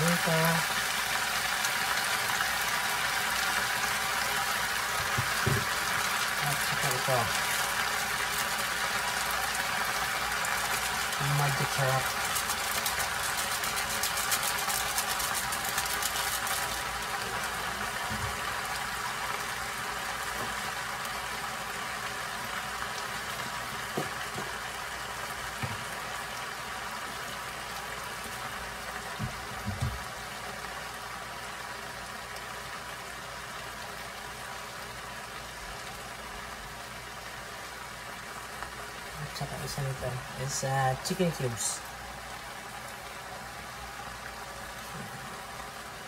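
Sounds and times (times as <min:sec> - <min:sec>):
greens sizzling in a frying pan: 0:00.0 - 0:46.0
crackling: 0:05.6 - 0:17.4.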